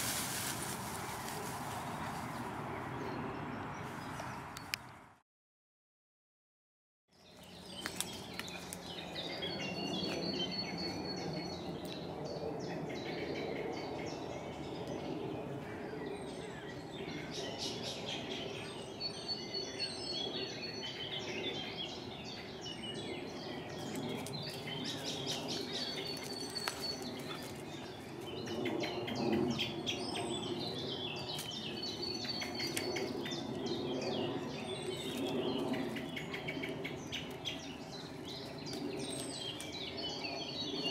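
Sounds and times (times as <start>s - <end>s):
birds chirping and warbling: 0.6s - 5.0s, 7.1s - 40.9s.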